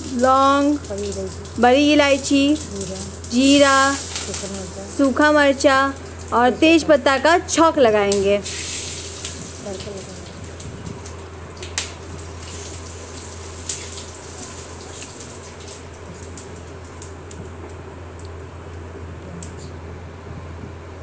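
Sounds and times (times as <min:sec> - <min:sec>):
sharp pops and crackles: 0:00.0 - 0:05.1, 0:08.1 - 0:18.8
spices sizzling in hot oil: 0:00.0 - 0:17.7
low steady hum: 0:00.0 - 0:21.0.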